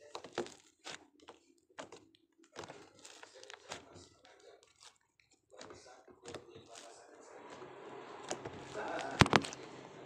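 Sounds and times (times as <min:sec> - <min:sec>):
slime crackling and popping: 0:00.0 - 0:09.6.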